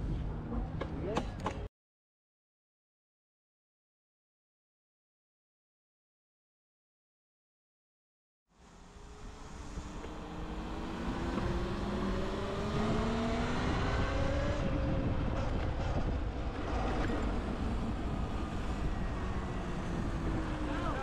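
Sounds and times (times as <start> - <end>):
wind rumble on microphone: 0.0 - 1.2, 9.1 - 21.0.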